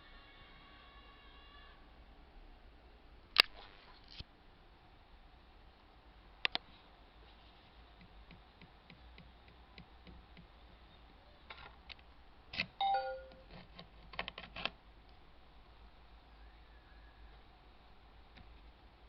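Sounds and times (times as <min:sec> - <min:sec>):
two-note computer chime: 0:12.8 - 0:13.4.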